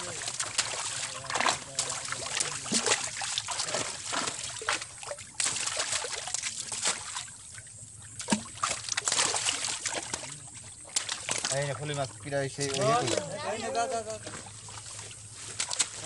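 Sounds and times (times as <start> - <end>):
fish thrashing in water: 0.0 - 16.0
water splashing and sloshing: 0.0 - 16.0.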